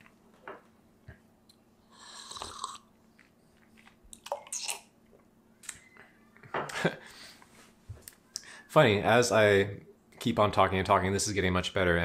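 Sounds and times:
person slurping coffee: 1.9s - 2.9s.

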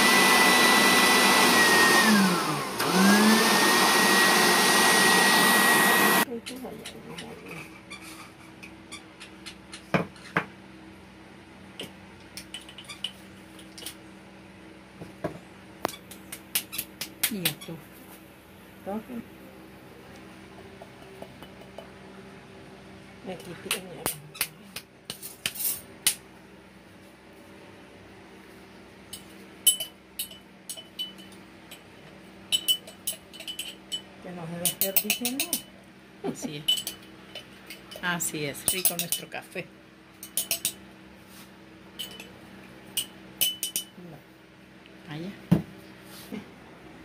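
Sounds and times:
spoon clinking against glass jar: 29.2s - 31.4s, 32.5s - 35.7s, 36.6s - 38.0s, 38.7s - 39.3s, 40.2s - 40.8s, 42.0s - 44.0s.

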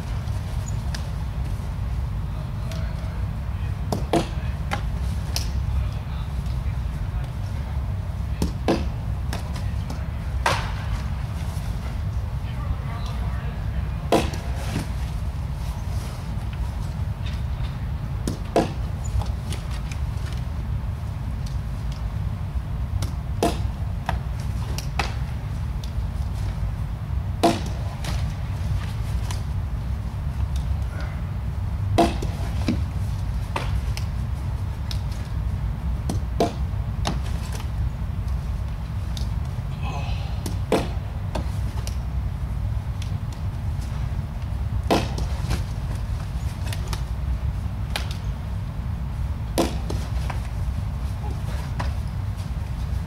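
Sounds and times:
steady low hum: 0.0s - 53.0s
baseball smacking: 3.8s - 5.6s, 8.3s - 12.0s, 14.1s - 15.0s, 16.3s - 20.4s, 22.9s - 26.6s, 27.3s - 31.1s, 31.9s - 35.4s, 36.0s - 37.8s, 40.2s - 42.1s, 42.9s - 48.4s, 49.5s - 53.0s.

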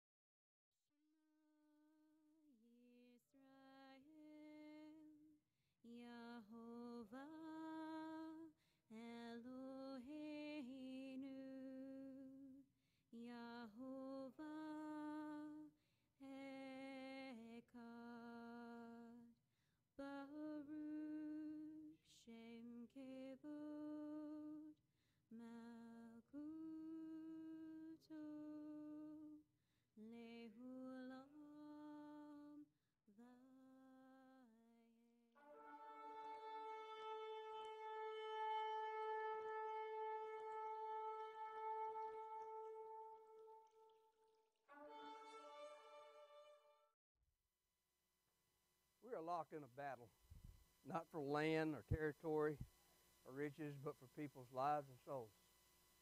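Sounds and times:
woman singing slow melody: 1.6s - 44.2s.

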